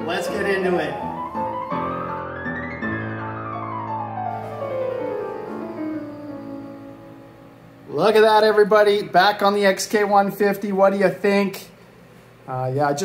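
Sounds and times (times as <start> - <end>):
piano music: 0.0 - 9.1.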